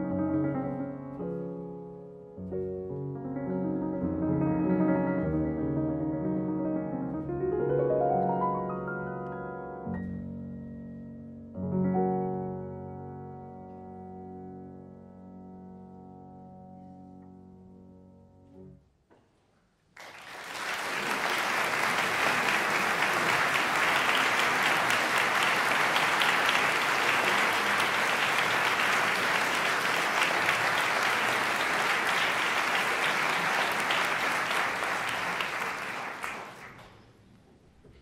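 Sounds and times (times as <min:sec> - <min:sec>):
audience applause: 0:20.0 - 0:37.0.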